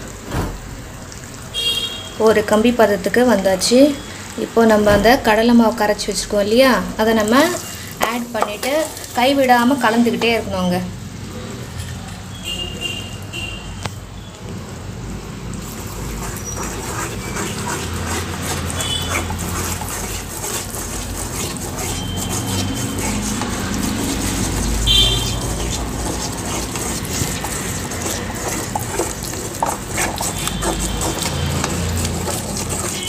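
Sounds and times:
boiling syrup sizzling: 0.0 - 11.6, 12.2 - 33.0
wooden spatula stirring pot: 4.7 - 10.8, 15.4 - 33.0.

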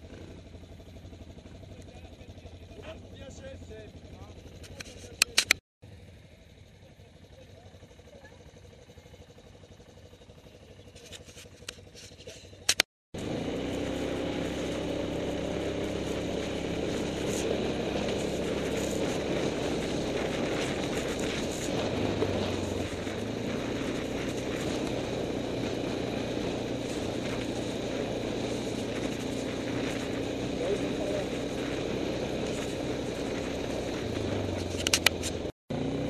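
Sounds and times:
quad bike engine running: 0.0 - 36.0
sharp clicks: 4.6 - 5.6, 12.7 - 12.9, 34.5 - 35.5.

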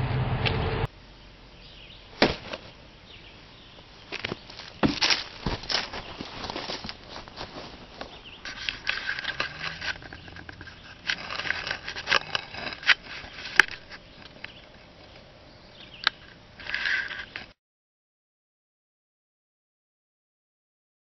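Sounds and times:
scraping and rustling handling noise: 2.2 - 2.8, 3.9 - 15.2, 16.2 - 17.6.

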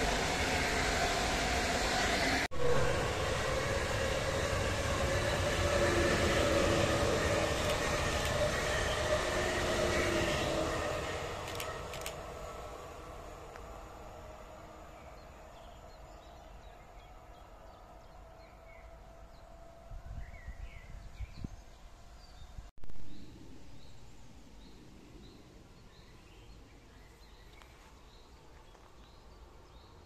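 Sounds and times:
train rumble with whine: 0.0 - 30.0
songbirds chirping: 14.6 - 19.6, 20.2 - 30.0.

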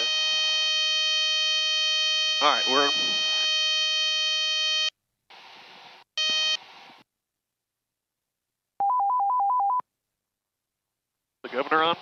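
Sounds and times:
piercing warning horn tone: 0.0 - 4.9
two-tone warning warble: 2.1 - 3.8.

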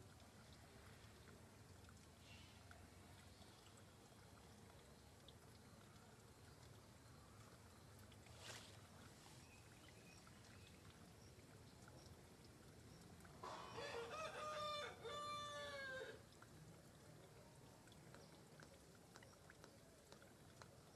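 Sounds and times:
soft rustling: 8.2 - 9.4
soft ticks: 16.3 - 20.9.

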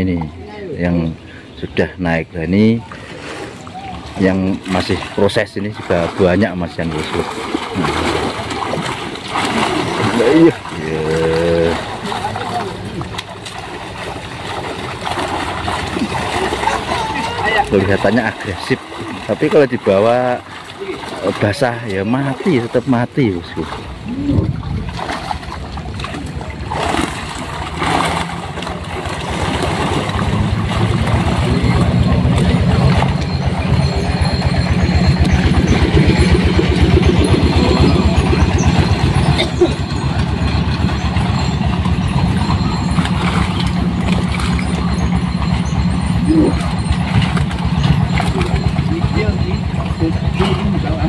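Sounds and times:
small engine running: 6.8 - 21.4, 26.6 - 51.0.

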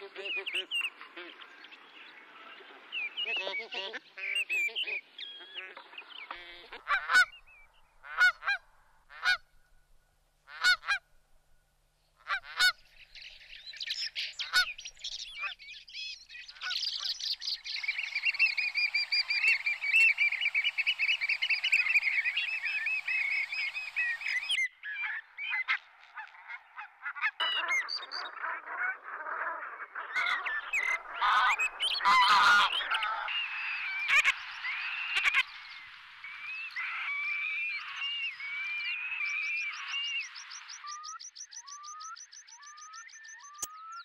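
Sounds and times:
geese honking: 2.3 - 9.4, 10.5 - 11.0, 12.2 - 12.8, 14.2 - 15.6, 17.8 - 34.4.

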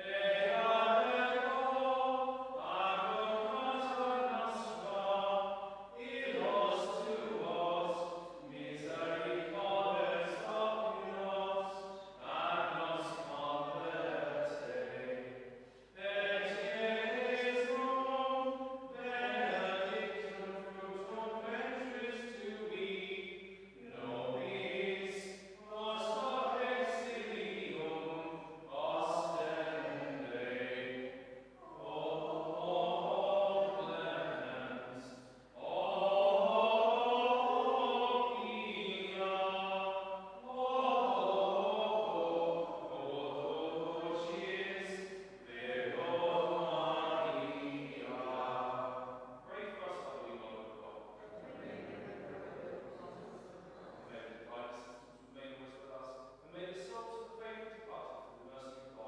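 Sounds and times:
slow sung chant: 0.0 - 59.0
person breathing: 15.6 - 16.0.

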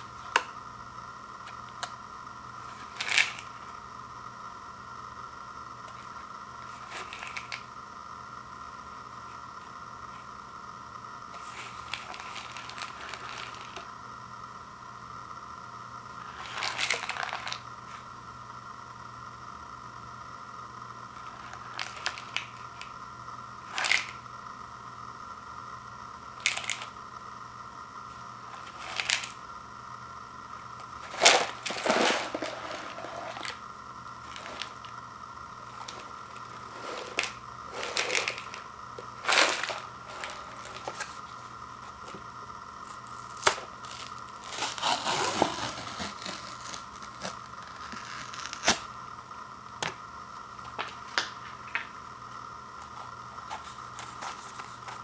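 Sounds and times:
lid crinkling rustles: 30.8 - 33.6, 34.2 - 35.0, 35.6 - 41.2
lid tearing rustle: 31.0 - 33.6, 35.7 - 41.2, 43.0 - 48.8.

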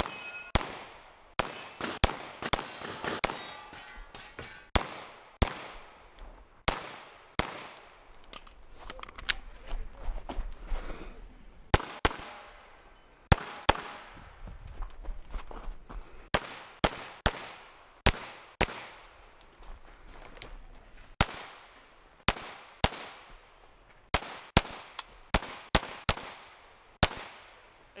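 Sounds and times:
handgun shots with echo: 0.0 - 3.7, 13.3 - 14.1.

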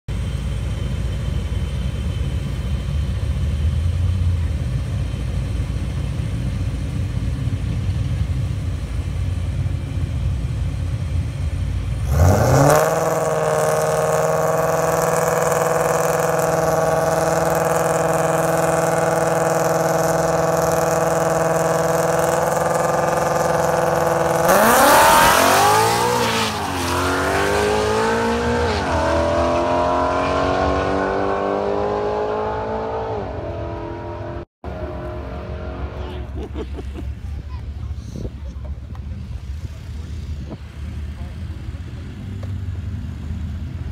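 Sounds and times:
car engine idling and revving: 0.1 - 43.9
car accelerating through gears: 12.0 - 36.2.

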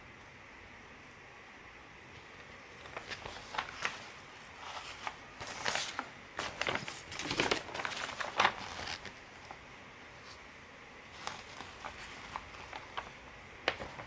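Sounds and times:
paper sheets rustling: 2.3 - 9.6, 11.1 - 14.0.

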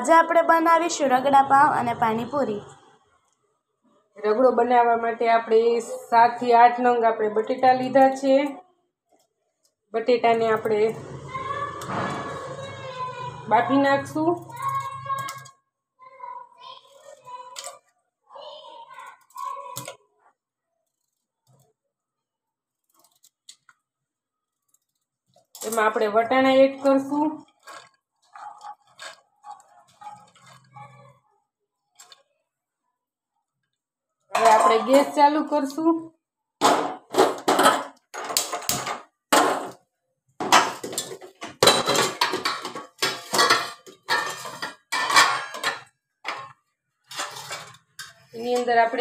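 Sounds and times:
metal kitchenware clattering: 25.5 - 31.2, 34.3 - 35.8, 36.6 - 39.8, 40.4 - 49.0.

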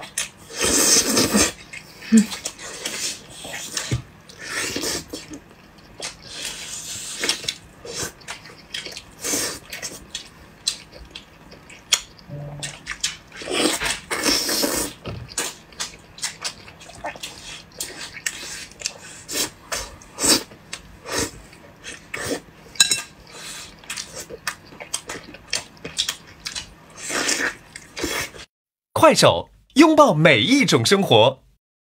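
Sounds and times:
wet chewing: 0.0 - 28.4
slurping: 0.5 - 5.4.

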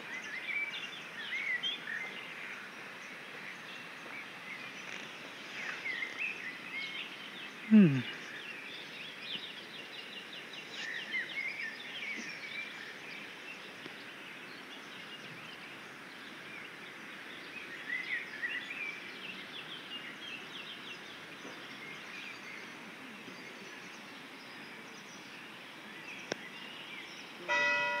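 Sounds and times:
birds chirping and trilling: 0.0 - 28.0
steady outdoor hiss: 0.0 - 28.0.

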